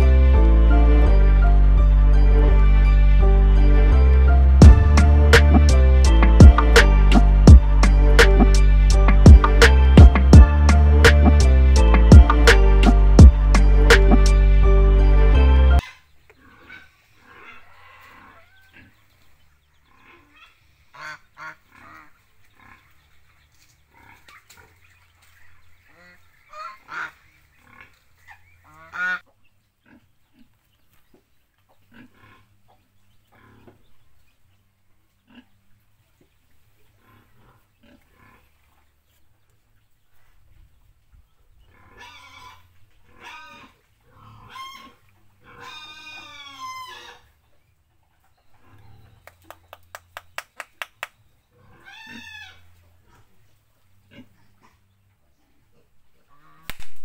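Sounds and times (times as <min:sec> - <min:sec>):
geese honking: 0:00.0 - 0:15.9, 0:25.9 - 0:29.3.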